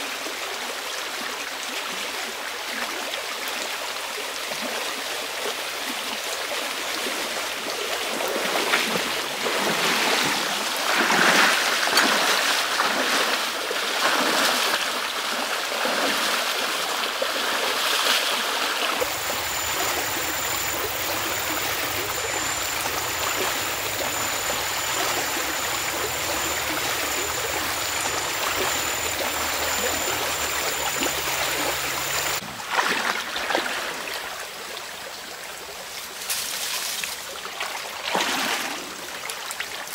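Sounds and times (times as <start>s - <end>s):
stream rushing over stones: 0.0s - 39.9s
wading splashes in shallow water: 4.5s - 34.8s, 36.0s - 39.9s
continuous high-pitched tone: 19.0s - 32.4s
low hum: 19.0s - 32.4s.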